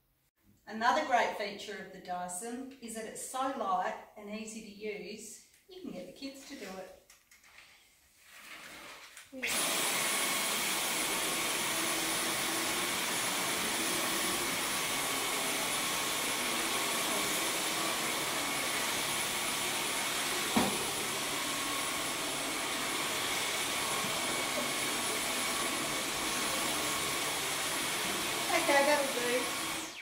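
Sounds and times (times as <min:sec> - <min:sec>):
cordless vacuum running: 0:09.4 - 0:30.0.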